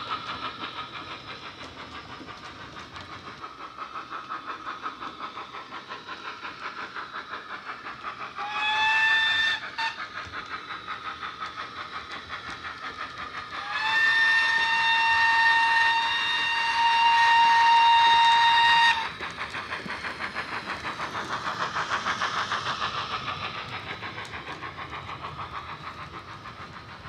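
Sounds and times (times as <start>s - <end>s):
steam locomotive exhaust chuffs: 0.0s - 27.0s
steam whistle blowing: 8.4s - 10.0s, 13.6s - 19.1s.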